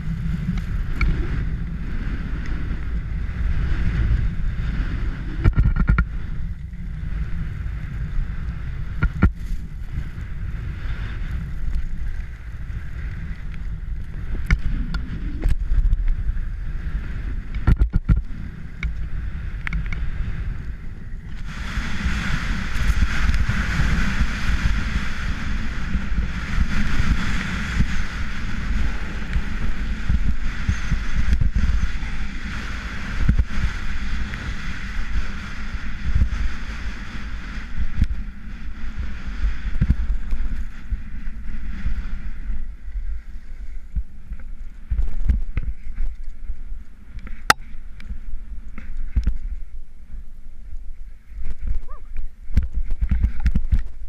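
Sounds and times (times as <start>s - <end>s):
wind buffeting microphone: 0.0s - 54.0s
skis hissing over snow: 21.2s - 42.4s.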